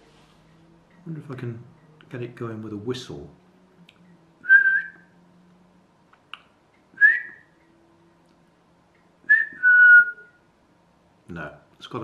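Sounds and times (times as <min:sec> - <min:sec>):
person whistling: 0:04.4 - 0:05.1, 0:07.0 - 0:07.5, 0:09.3 - 0:10.4.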